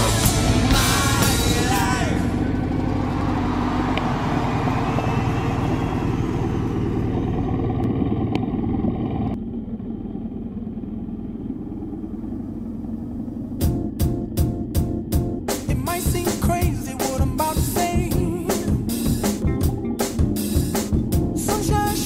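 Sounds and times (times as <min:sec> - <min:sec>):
motorcycle engine running: 0:00.0 - 0:22.0
motorcycle idling: 0:00.0 - 0:22.0
wind and road noise: 0:02.2 - 0:14.4.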